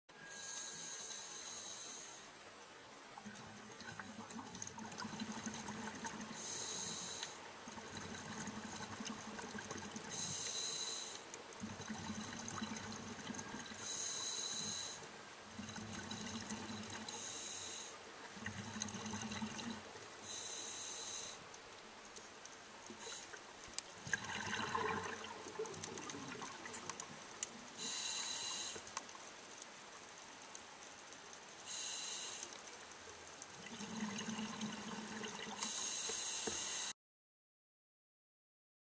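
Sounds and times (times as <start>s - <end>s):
exhaled air bubbling underwater: 3.2s - 10.4s, 11.6s - 14.0s, 15.5s - 17.2s, 18.3s - 19.8s, 24.0s - 28.0s, 33.6s - 35.9s
diver inhaling through regulator: 27.8s - 28.8s.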